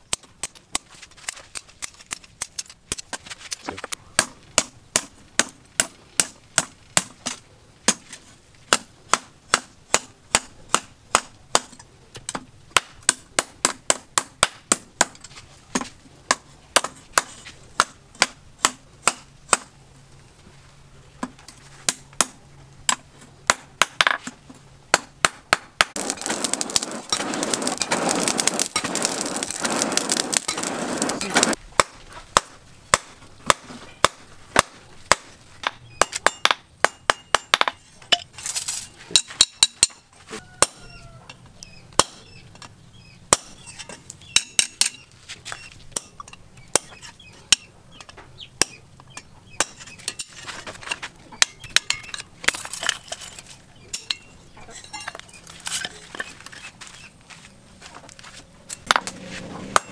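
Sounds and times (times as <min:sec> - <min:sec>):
hammer striking hot steel: 0:24.9 - 0:35.2, 0:36.0 - 0:38.3.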